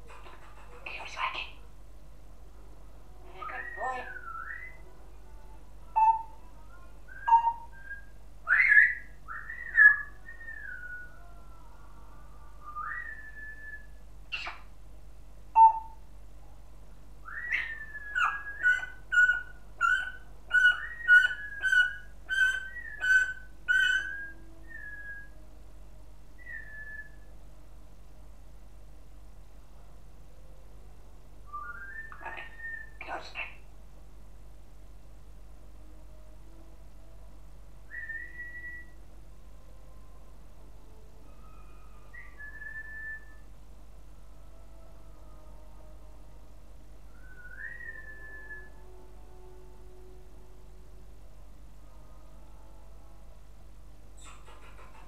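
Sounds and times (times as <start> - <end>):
parrot whistling: 17.3 - 25.3.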